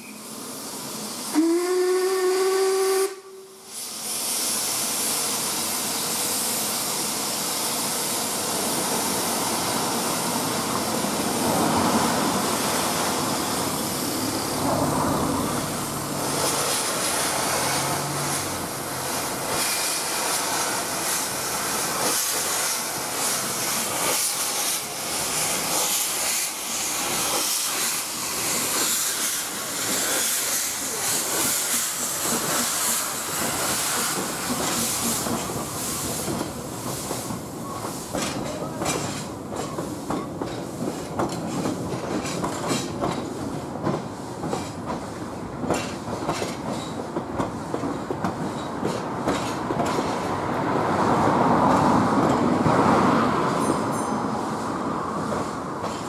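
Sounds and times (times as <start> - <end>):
steam venting hiss: 0.0 - 40.1
steam locomotive whistle: 1.3 - 3.8
train knocks: 31.2 - 50.4.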